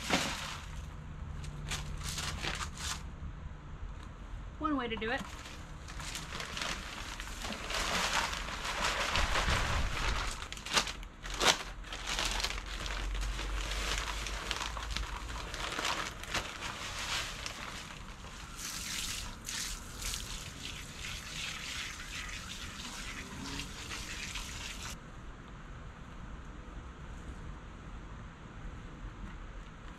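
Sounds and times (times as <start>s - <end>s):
plastic bags crinkling: 0.0s - 3.0s, 5.2s - 25.0s
soil pouring into pots: 12.0s - 25.0s.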